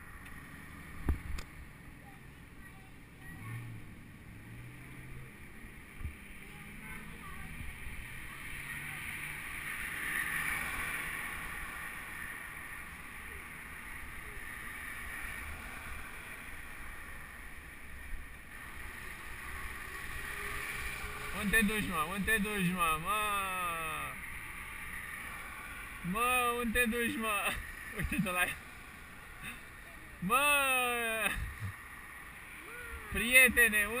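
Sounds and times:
street traffic: 0.0s - 34.0s
bicycle rolling on pavement: 3.9s - 23.4s, 24.0s - 26.1s.

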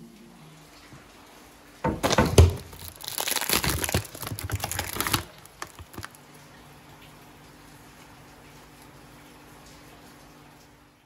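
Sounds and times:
crinkling and crackling handling noise: 1.9s - 6.3s.

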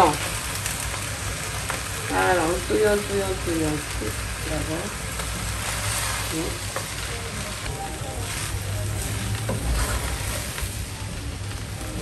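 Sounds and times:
rice sizzling in a pan: 0.0s - 12.0s
wooden spatula scraping a pan: 8.2s - 10.6s.

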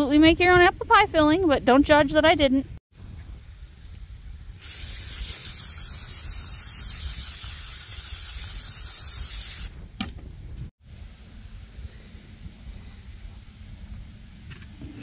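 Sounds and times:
low wind rumble: 0.0s - 7.6s, 9.0s - 15.0s
aerosol spray hissing: 4.6s - 9.8s.

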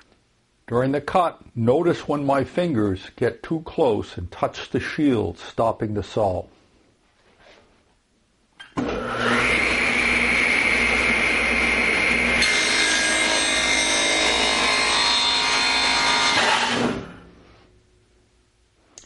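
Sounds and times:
table saw whine: 8.8s - 17.3s
saw blade cutting wood: 12.0s - 17.2s.

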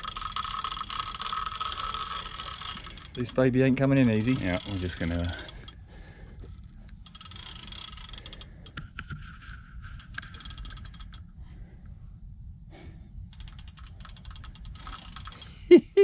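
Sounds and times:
fishing reel drag clicking: 0.0s - 5.8s, 6.4s - 8.8s, 9.9s - 11.3s, 13.3s - 15.6s.

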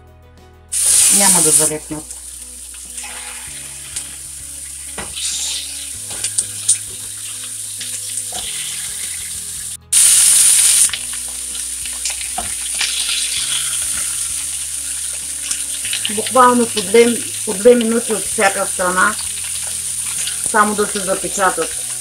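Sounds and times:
loud burst of hissing: 0.8s - 1.7s, 5.1s - 7.4s, 8.3s - 11.8s
meat sizzling in a frying pan: 0.8s - 22.0s.

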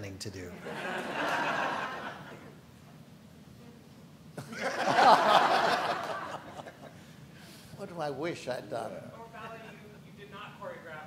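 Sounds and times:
audience laughing: 0.6s - 2.5s, 4.4s - 6.9s.

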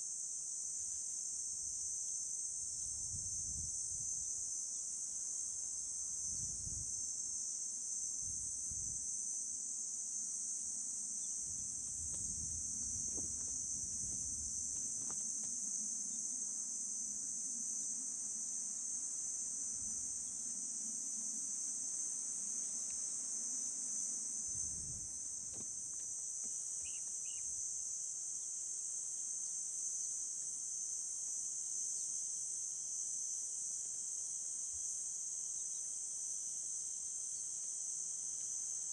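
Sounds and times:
insects trilling: 0.0s - 38.9s.

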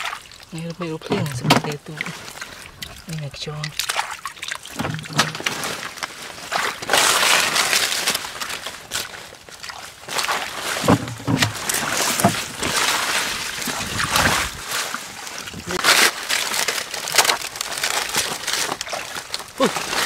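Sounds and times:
hands splashing in water: 0.0s - 20.0s
rustling through leaves: 0.0s - 20.0s.

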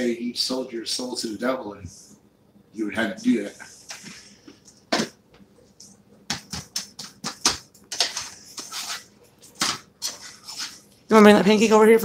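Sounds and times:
spatula scraping frying pan: 10.0s - 10.9s.

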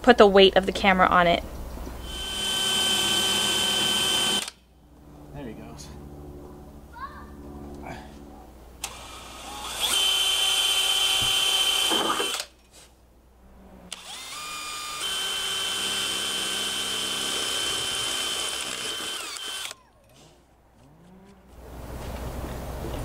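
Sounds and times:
cordless drill whining: 2.0s - 4.6s, 8.8s - 12.5s, 13.9s - 19.9s.

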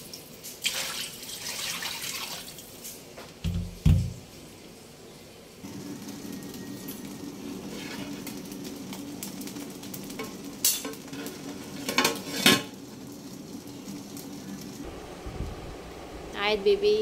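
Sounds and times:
steady low hum: 12.8s - 17.0s.

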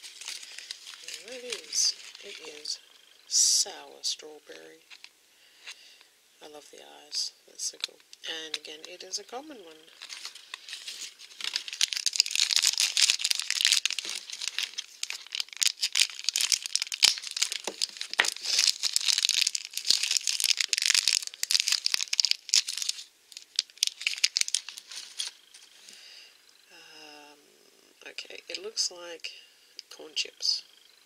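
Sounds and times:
plastic wrapper crinkling: 0.0s - 2.8s, 9.6s - 25.8s.

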